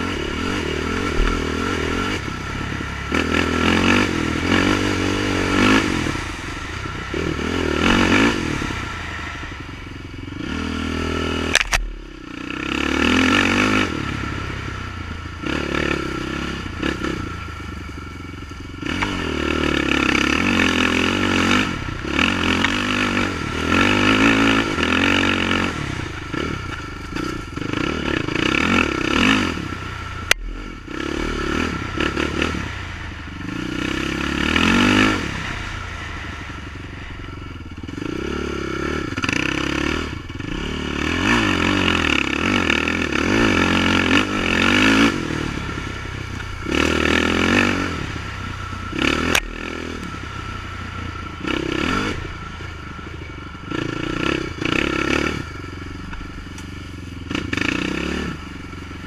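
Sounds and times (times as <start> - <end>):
quad bike engine revving: 0.0 - 59.0
sharp clicks: 11.5 - 12.0.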